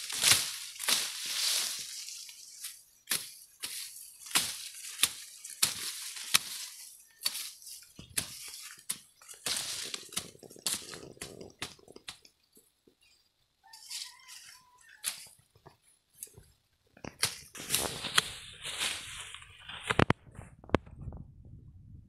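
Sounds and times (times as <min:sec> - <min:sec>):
dry grass rustling: 0:00.0 - 0:20.8
grass snapping under knife: 0:03.0 - 0:12.3, 0:17.0 - 0:18.3.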